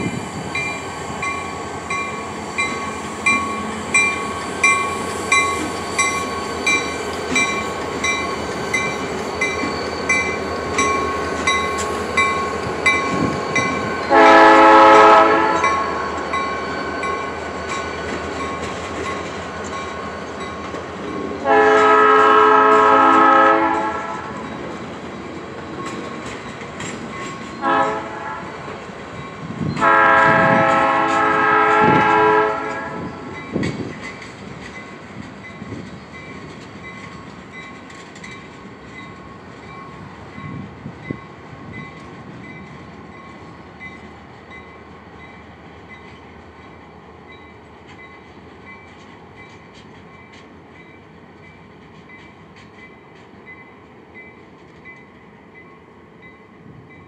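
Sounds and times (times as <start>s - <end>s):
train engine and wheels rumbling: 0.0s - 57.0s
locomotive air horn: 14.1s - 16.0s, 21.4s - 24.4s, 27.6s - 28.6s, 29.8s - 33.2s.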